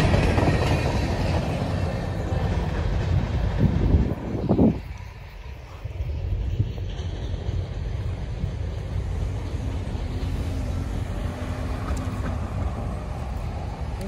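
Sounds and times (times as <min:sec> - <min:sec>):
car driving over railroad tracks: 0:06.3 - 0:14.0.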